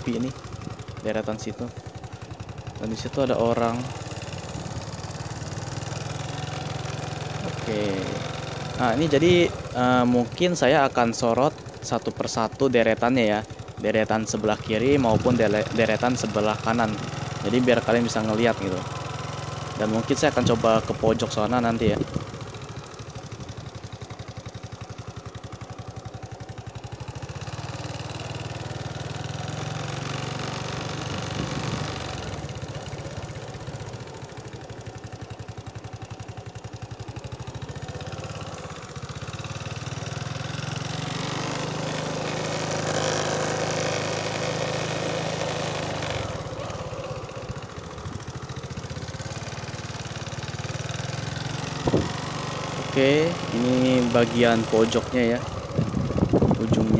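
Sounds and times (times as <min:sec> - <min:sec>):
road noise: 0:00.0 - 0:56.9
small vehicle engine running: 0:00.0 - 0:56.9.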